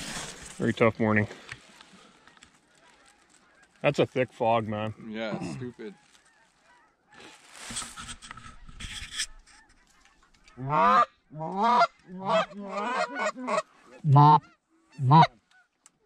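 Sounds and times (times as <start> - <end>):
goose call honks and clucks: 5.3 - 15.7
rustle: 5.4 - 10.5.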